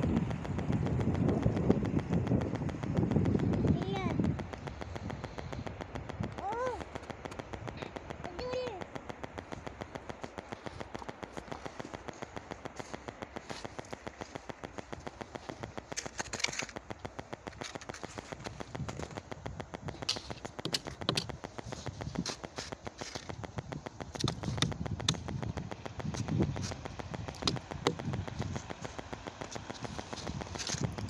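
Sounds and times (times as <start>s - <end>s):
fast even ticking: 0.0s - 31.0s
footsteps crunching in snow: 10.2s - 16.8s.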